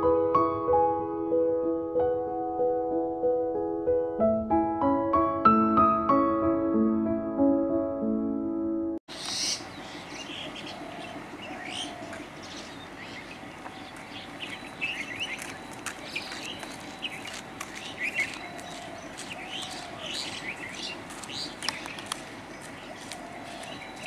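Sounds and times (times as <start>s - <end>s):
piano tune: 0.0s - 9.0s
birds chirping and calling: 9.1s - 24.0s
outdoor background hum: 9.1s - 24.0s.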